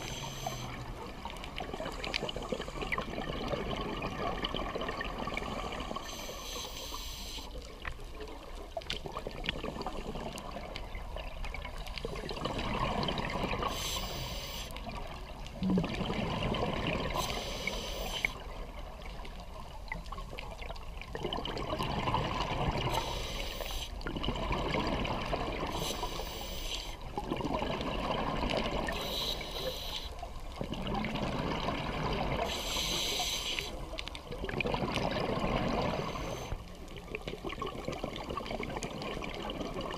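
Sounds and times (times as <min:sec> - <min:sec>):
hissing regulator inhale: 0:00.0 - 0:01.0, 0:05.3 - 0:07.6, 0:13.6 - 0:14.8, 0:17.1 - 0:18.5, 0:22.9 - 0:24.0, 0:25.7 - 0:27.0, 0:28.8 - 0:30.2, 0:32.4 - 0:33.9, 0:35.7 - 0:36.6
gurgling exhaled bubbles: 0:00.0 - 0:06.1, 0:08.8 - 0:26.4, 0:27.0 - 0:29.7, 0:30.3 - 0:39.9.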